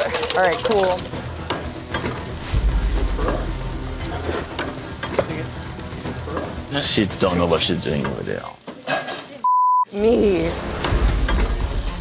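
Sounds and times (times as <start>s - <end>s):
utensils clinking on pans: 0.0s - 2.4s, 3.2s - 9.4s
food sizzling in a pan: 0.0s - 12.0s.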